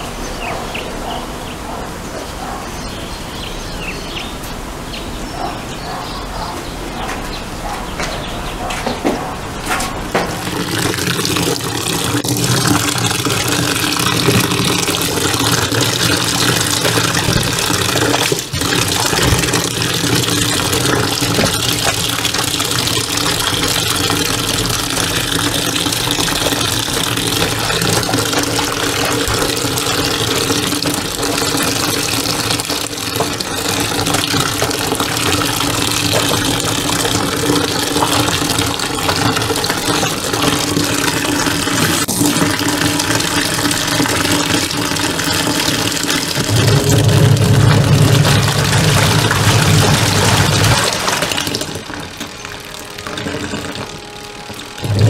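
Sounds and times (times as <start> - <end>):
washing machine motor churning: 8.2 - 55.0
water running into washing machine: 10.0 - 55.0.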